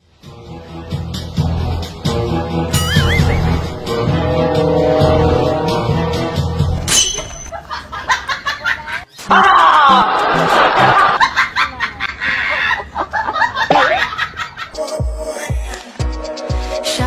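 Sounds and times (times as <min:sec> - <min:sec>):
laughter in short bursts: 0:07.5 - 0:14.8.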